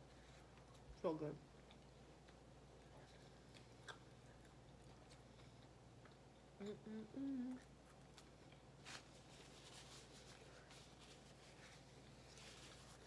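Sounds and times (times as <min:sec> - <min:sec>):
steady low hum: 0:00.0 - 0:13.0
chewing: 0:00.2 - 0:06.6
woman humming closed-mouth: 0:06.6 - 0:07.7.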